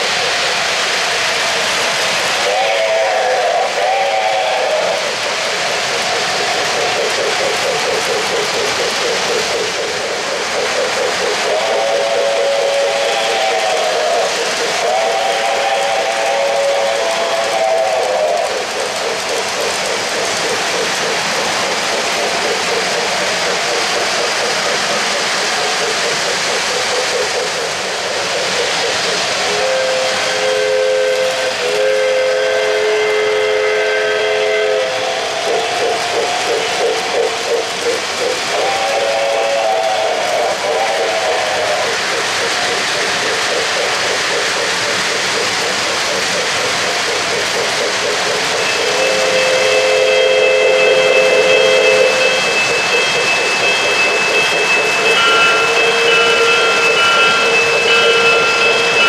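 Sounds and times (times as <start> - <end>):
hissing steam running sounds: 0.0 - 59.0
model train cars rumbling: 0.0 - 59.0
two-note steam whistle: 2.3 - 5.2, 11.4 - 18.5, 29.4 - 35.7, 38.5 - 41.9, 48.6 - 59.0.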